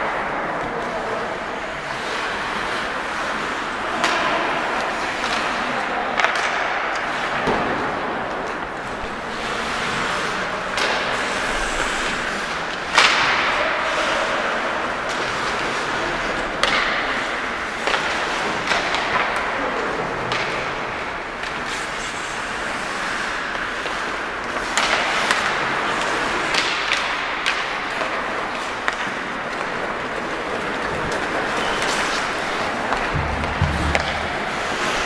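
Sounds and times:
skates scraping on ice: 0.1s - 35.0s
stick hitting puck: 10.8s - 11.2s, 12.9s - 13.5s, 24.6s - 29.7s, 32.9s - 35.0s.

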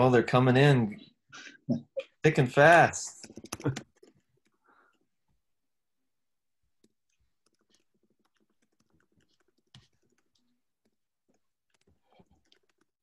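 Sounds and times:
typing on computer keyboard: 3.2s - 4.2s, 7.1s - 12.9s.

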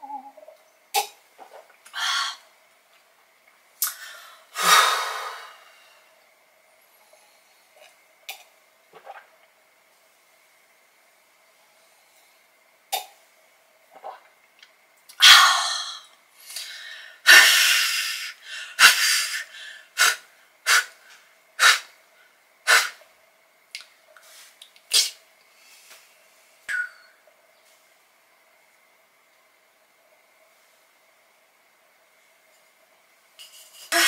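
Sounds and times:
woman's breathy vocal bursts: 2.0s - 2.4s.

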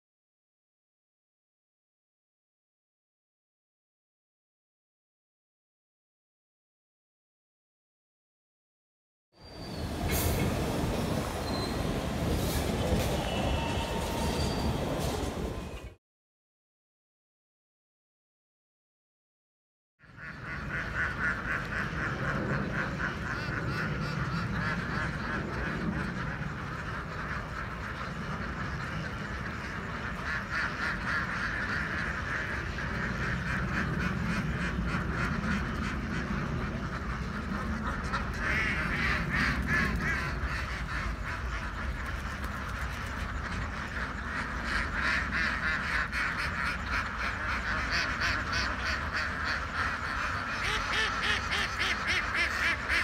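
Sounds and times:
flock of ducks quacking: 9.9s - 15.9s, 20.0s - 53.0s.

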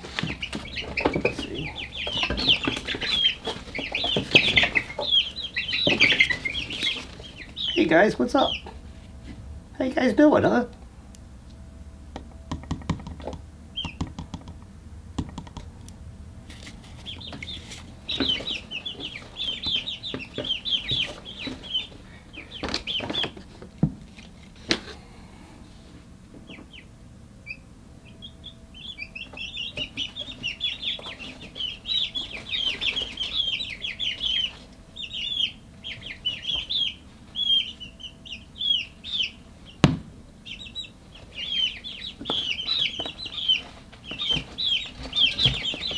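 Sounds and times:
chicks peeping and chirping: 0.0s - 10.8s, 12.5s - 45.9s
sharp knocks: 12.5s - 14.6s.

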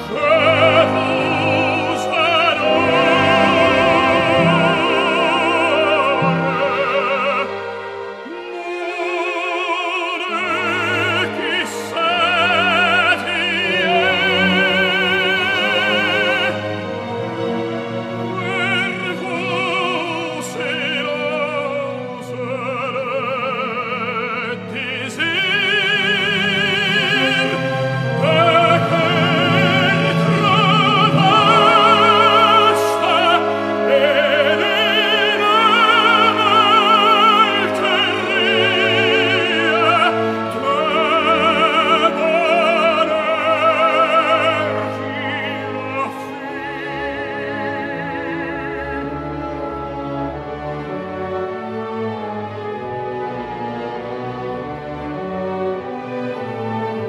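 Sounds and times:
operatic tenor singing: 0.0s - 57.0s
orchestral accompaniment: 0.0s - 57.0s.

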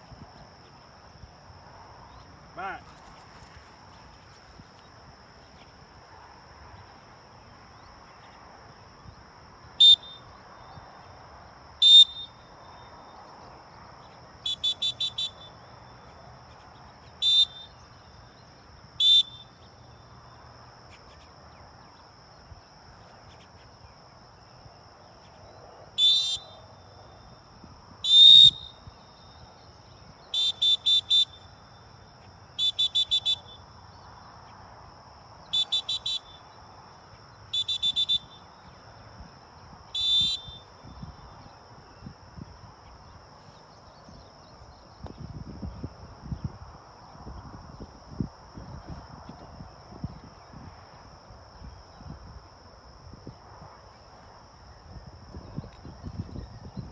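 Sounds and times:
dog whistle blasts: 9.8s - 10.2s, 11.8s - 12.4s, 14.5s - 15.5s, 17.2s - 17.7s, 19.0s - 19.5s, 26.0s - 26.6s, 28.0s - 28.8s, 30.4s - 31.4s, 32.6s - 33.6s, 35.5s - 36.3s, 37.5s - 38.4s, 40.0s - 40.7s.

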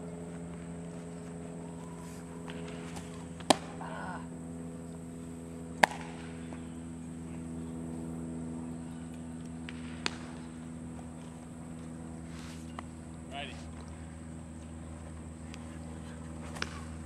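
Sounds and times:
steady machine hum: 0.0s - 17.0s
baseball smacking into glove: 1.8s - 3.9s, 5.8s - 6.7s, 9.6s - 10.6s, 16.4s - 17.0s.

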